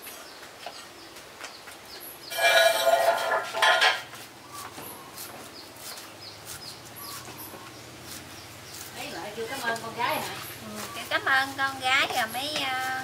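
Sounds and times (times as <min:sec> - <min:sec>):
metal kitchenware clanging: 0:02.3 - 0:04.1.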